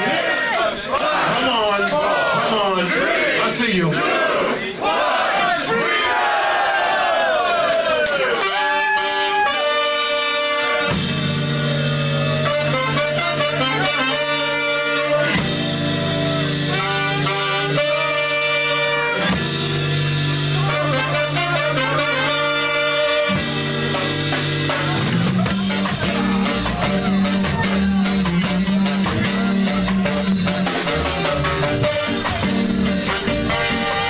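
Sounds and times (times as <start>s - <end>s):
horn section playing: 0.0s - 34.0s
live ska band playing: 8.0s - 34.0s
bass line: 8.4s - 34.0s.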